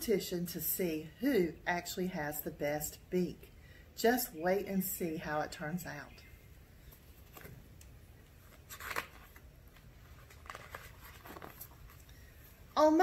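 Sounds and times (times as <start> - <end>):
faint steady background hum: 0.0 - 13.0
book pages rustling: 6.9 - 12.6.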